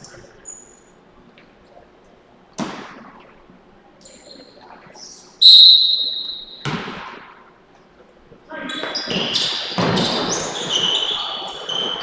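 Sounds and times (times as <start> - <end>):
referee's whistle blast: 5.4 - 6.7.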